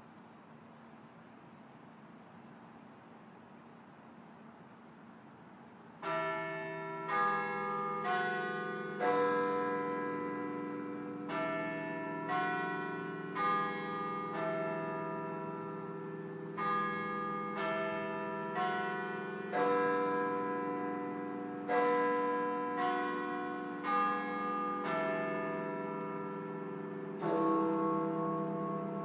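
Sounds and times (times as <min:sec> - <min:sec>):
faint hiss: 0:00.0 - 0:07.1
clock tower bells chiming: 0:06.0 - 0:29.0.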